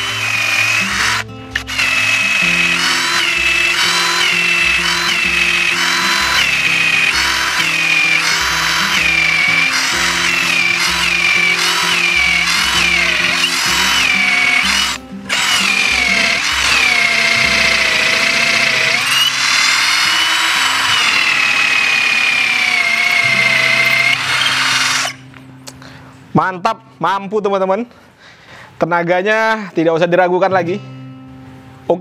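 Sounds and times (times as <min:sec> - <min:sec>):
cordless drill boring through wood: 0:00.0 - 0:25.2
background music: 0:00.0 - 0:27.4.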